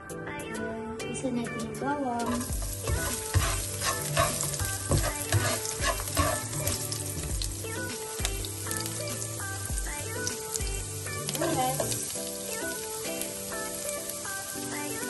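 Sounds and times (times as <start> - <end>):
spatula scraping and tapping pan: 2.3 - 7.4
garlic sizzling in oil: 2.3 - 15.0.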